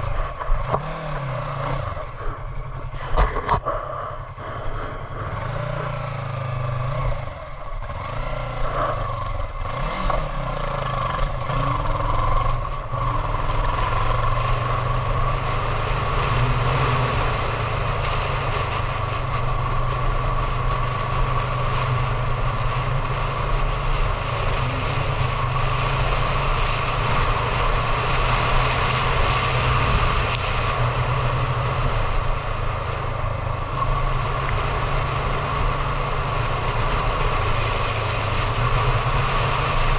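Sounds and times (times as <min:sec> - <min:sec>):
wind noise: 0:00.0 - 0:08.0
motorcycle engine: 0:00.0 - 0:39.9.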